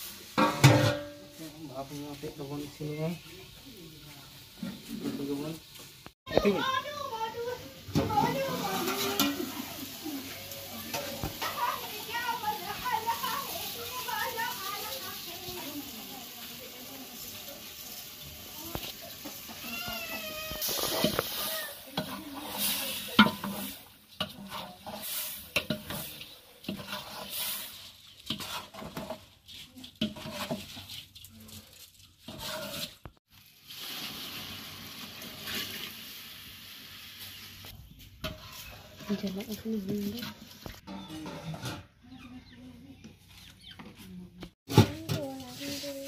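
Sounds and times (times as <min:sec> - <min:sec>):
food sizzling: 0:00.0 - 0:40.9, 0:44.6 - 0:46.0
ladle scraping a metal pot: 0:20.6 - 0:33.2, 0:35.0 - 0:35.9, 0:38.1 - 0:42.2.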